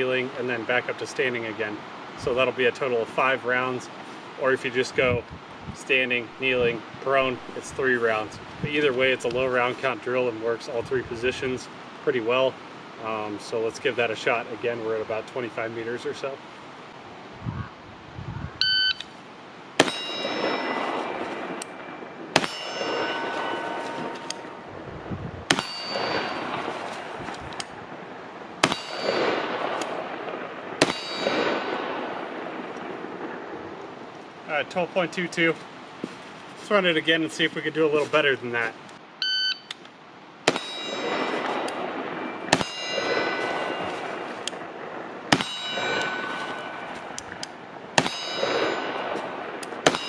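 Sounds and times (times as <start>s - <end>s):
rifle shots: 19.8s - 24.7s, 25.5s - 27.7s, 28.6s - 33.5s, 40.4s - 47.4s, 48.0s - 50.0s
steel target clanging: 19.8s - 24.7s, 25.5s - 27.8s, 28.6s - 33.0s, 40.5s - 44.7s, 45.3s - 50.0s.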